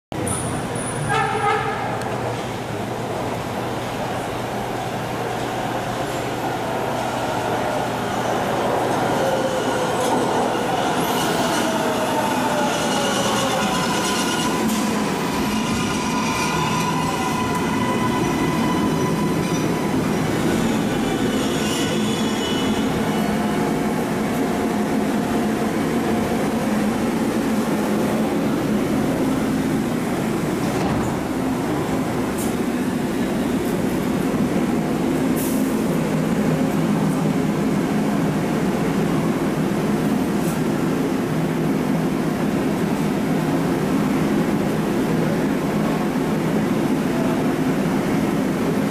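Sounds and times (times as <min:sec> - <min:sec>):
train cars rumbling: 0:00.5 - 0:48.9
train wheels squealing: 0:09.0 - 0:23.7.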